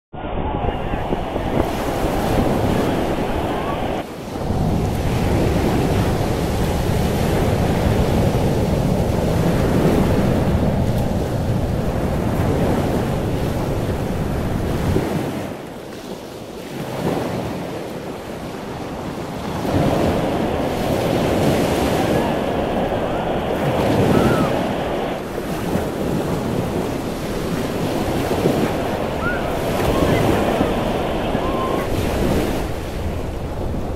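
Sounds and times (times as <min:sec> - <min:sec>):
ocean surf breaking: 0:00.1 - 0:33.9
wind rumbling on microphone: 0:00.1 - 0:33.9.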